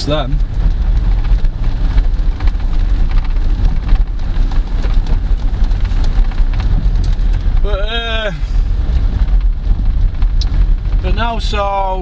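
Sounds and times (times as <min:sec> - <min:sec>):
car cabin engine rumble: 0:00.0 - 0:12.0
tyres hissing on wet road: 0:04.2 - 0:10.0.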